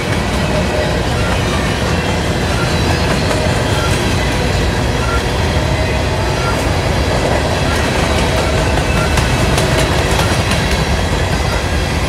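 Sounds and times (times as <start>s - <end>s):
freight train wheels rumbling on rails: 0.0s - 12.0s.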